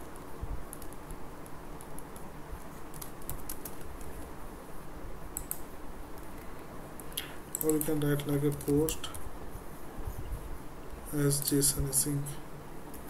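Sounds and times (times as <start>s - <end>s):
low background hum: 0.0s - 13.0s
computer keyboard typing: 0.1s - 4.3s, 5.4s - 6.4s, 7.0s - 9.2s.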